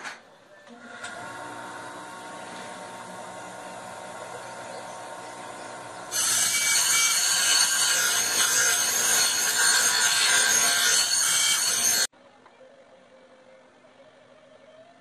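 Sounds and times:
bench grinder humming: 0:00.8 - 0:12.1
steel grinding on wheel: 0:01.6 - 0:12.1.

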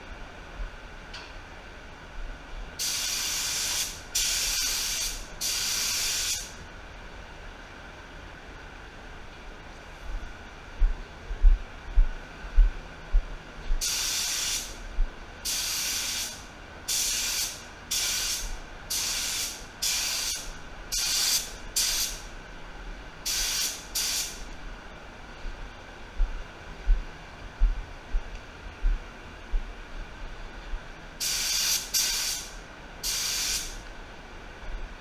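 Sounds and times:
spray gun hissing: 0:02.8 - 0:06.6, 0:13.8 - 0:14.8, 0:15.4 - 0:22.3, 0:23.2 - 0:24.5, 0:31.2 - 0:33.8.

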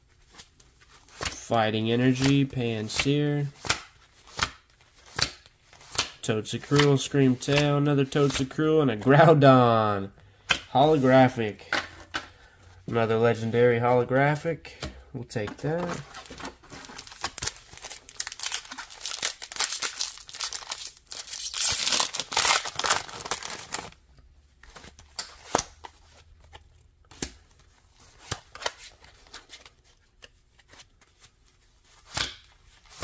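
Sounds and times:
cards tapping and sliding: 0:02.1 - 0:08.6
foil wrapper tearing and crinkling: 0:16.9 - 0:24.0.

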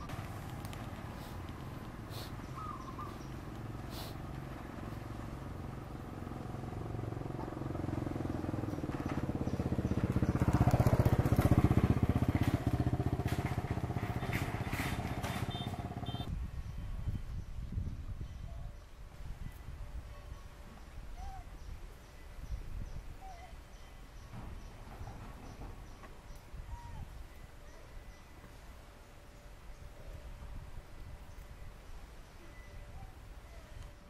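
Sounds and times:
vehicle engine passing by: 0:00.0 - 0:16.3.

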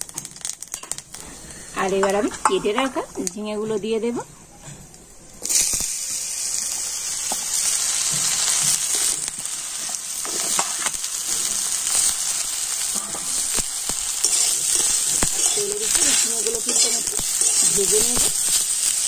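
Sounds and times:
vegetables sizzling in hot oil: 0:00.0 - 0:04.2, 0:05.4 - 0:19.0
metal spatula scraping pan: 0:14.2 - 0:18.3.

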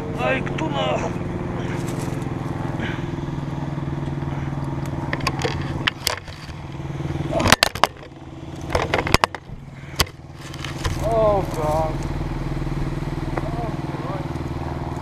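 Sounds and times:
engine idling: 0:00.0 - 0:15.0
camera handling knocks and scrapes: 0:05.1 - 0:06.6, 0:07.6 - 0:11.0.

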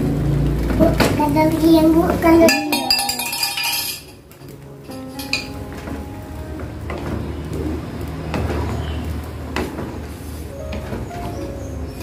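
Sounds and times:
wooden spatula scraping wok: 0:06.9 - 0:12.0.

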